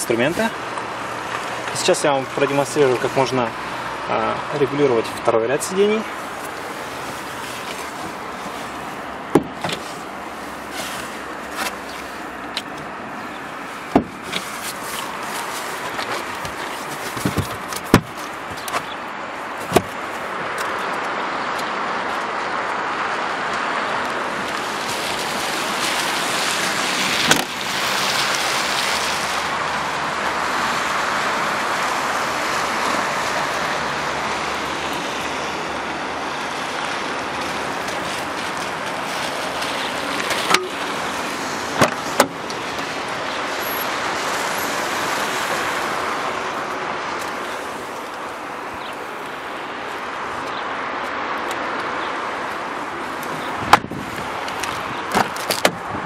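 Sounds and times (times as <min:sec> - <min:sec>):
traffic noise: 0:00.0 - 0:56.0
car tailgate slamming: 0:09.3 - 0:09.9, 0:13.9 - 0:14.4, 0:17.1 - 0:19.0, 0:41.7 - 0:42.4.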